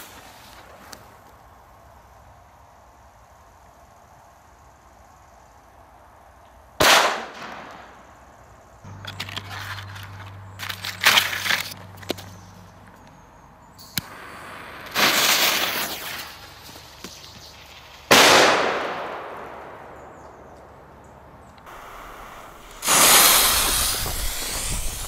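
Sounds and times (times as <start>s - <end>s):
firecracker fuse hissing: 0.0s - 1.2s, 13.9s - 18.3s, 21.7s - 25.0s
firework sparks hissing: 0.0s - 1.2s, 14.0s - 18.3s, 21.7s - 25.0s
firecracker bang: 18.1s - 19.8s, 21.7s - 25.0s.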